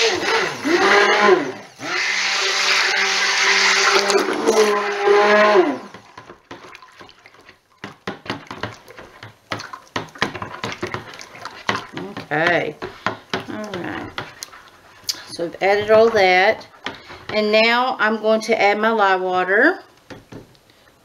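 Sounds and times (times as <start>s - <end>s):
stick blender whining: 0.0s - 6.7s.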